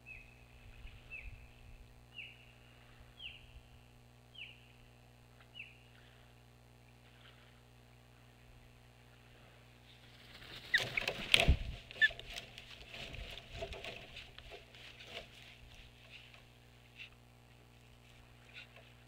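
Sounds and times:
twigs rustling and scraping: 9.9 - 19.0
wingbeats: 10.0 - 14.2.

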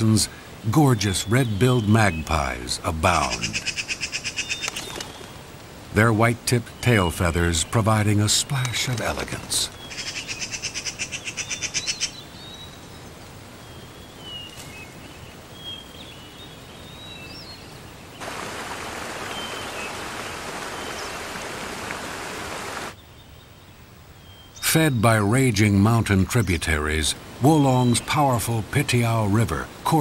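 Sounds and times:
soft hiss: 0.0 - 30.0
mountain stream rapids rushing: 18.2 - 23.0.

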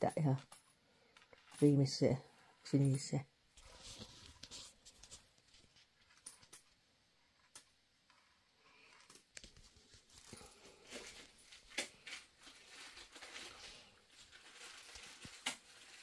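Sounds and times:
faint rustling: 3.5 - 7.5.

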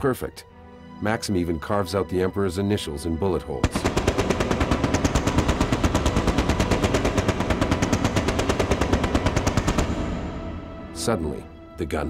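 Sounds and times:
machine gun firing: 3.6 - 10.5.

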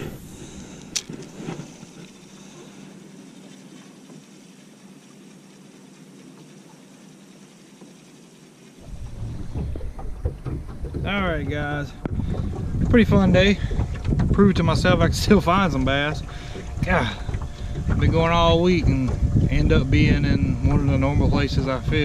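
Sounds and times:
wind buffeting microphone: 8.8 - 22.0.

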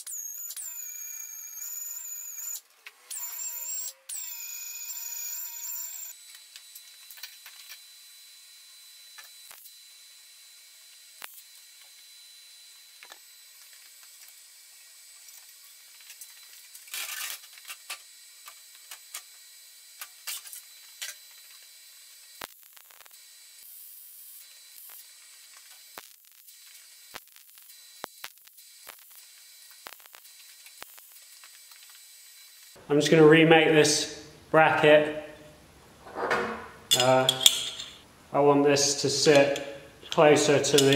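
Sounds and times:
welding crackles: 11.2 - 11.8, 22.3 - 32.8
metal parts clicking and knocking: 36.9 - 38.0, 39.3 - 40.9.

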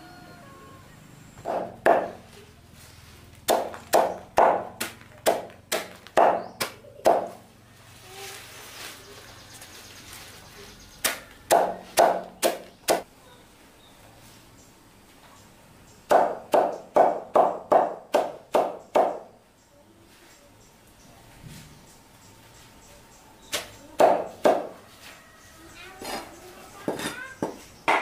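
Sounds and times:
knife chopping leafy greens: 3.4 - 7.4.

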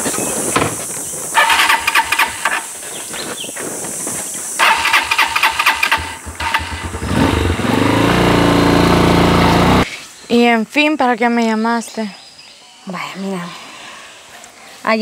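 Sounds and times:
motorcycle electric starter cranking: 1.4 - 2.7, 4.6 - 9.8
motorcycle engine idling: 4.6 - 9.8.

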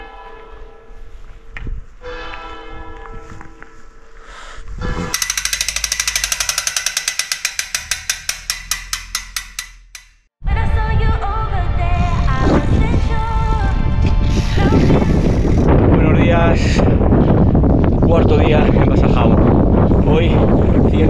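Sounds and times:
bicycle freewheel hub clicking: 5.2 - 10.2.

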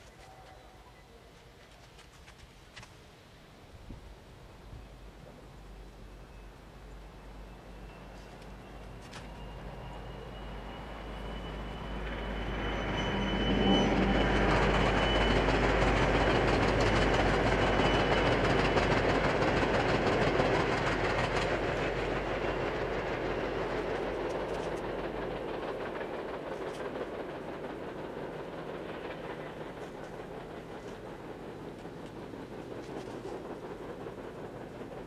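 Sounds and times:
thin high whine: 7.8 - 19.0.

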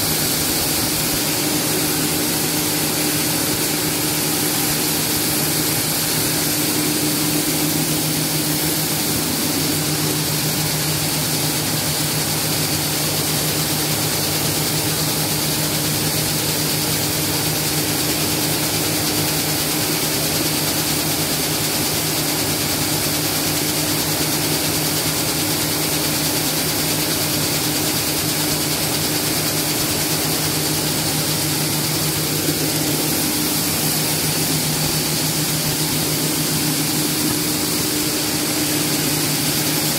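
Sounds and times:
machinery low hum: 0.0 - 11.8, 29.7 - 39.9.

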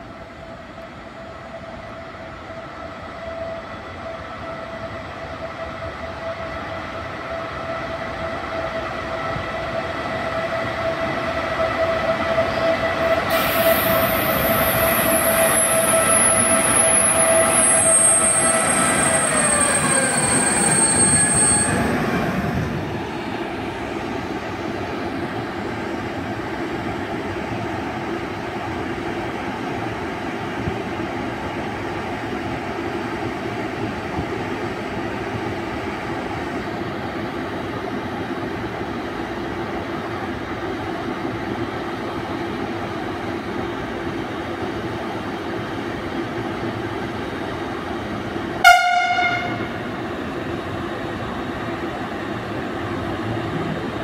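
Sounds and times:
high brake squeal: 12.4 - 22.1
locomotive hum and fan noise: 21.7 - 54.0
locomotive horn blast: 48.6 - 49.9.

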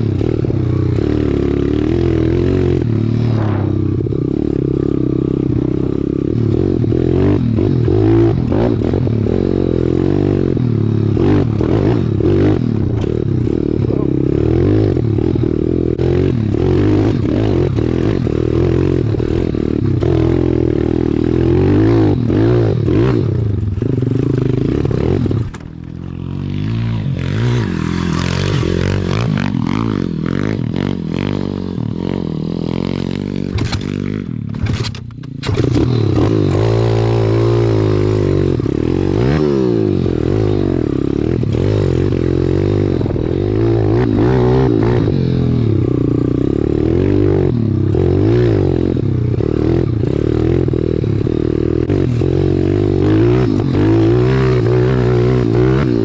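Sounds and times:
motorbike engine revving: 0.0 - 56.0.

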